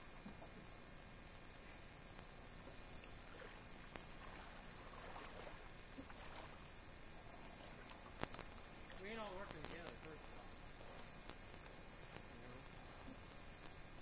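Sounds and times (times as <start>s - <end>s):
steady hiss: 0.0s - 14.0s
faint splashing in water: 2.9s - 12.3s.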